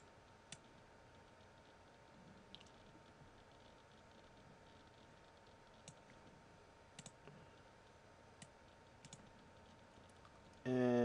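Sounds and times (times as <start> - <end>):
computer mouse clicks: 4.7 - 6.2, 7.0 - 7.4, 8.4 - 10.3.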